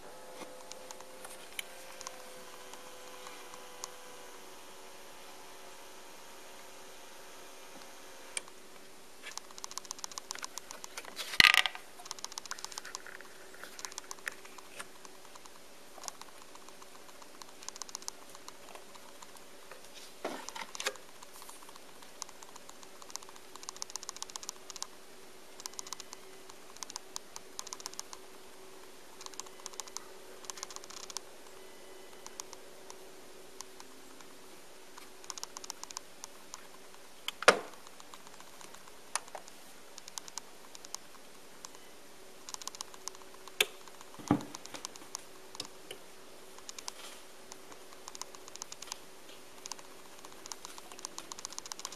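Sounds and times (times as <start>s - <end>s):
faint steady hum: 0.0s - 51.9s
rapid light clicking: 9.2s - 11.2s, 11.8s - 19.5s, 20.7s - 25.0s, 25.6s - 28.4s, 29.1s - 33.0s, 35.0s - 41.8s, 42.4s - 51.9s.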